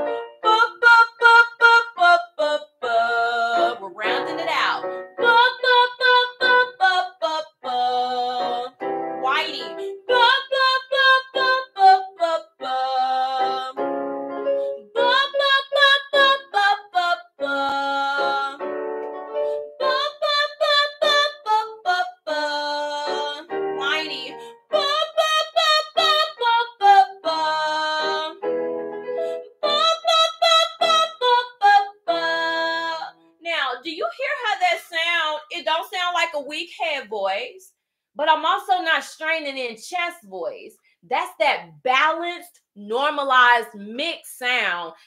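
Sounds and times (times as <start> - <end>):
piano accompaniment: 0.0 - 2.3, 2.9 - 33.4
woman singing vocal exercise: 0.5 - 13.8, 15.0 - 18.6, 19.8 - 28.4, 29.6 - 36.2.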